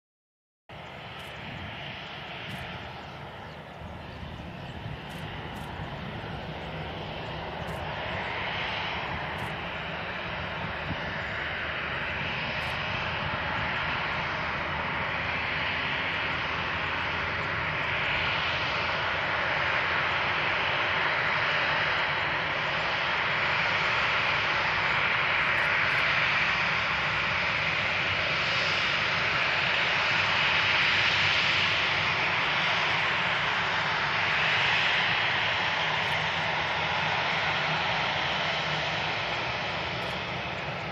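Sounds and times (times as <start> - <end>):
jet engines roaring on takeoff: 0.7 - 40.9.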